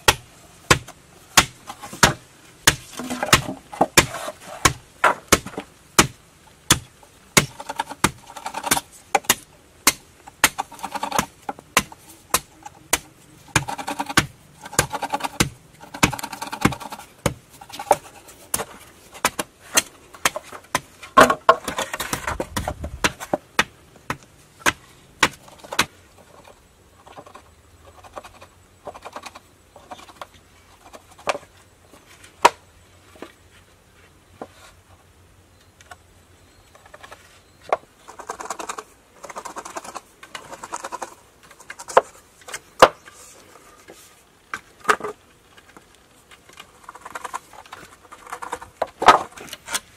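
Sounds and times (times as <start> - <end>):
knife chopping bamboo: 0.0 - 25.9
knife scraping bamboo: 0.7 - 23.4, 36.9 - 44.3.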